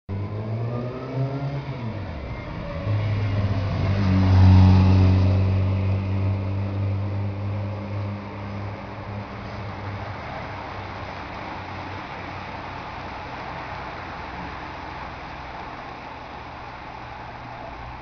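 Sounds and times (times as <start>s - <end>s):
vehicle engines passing slowly: 0.1s - 18.0s.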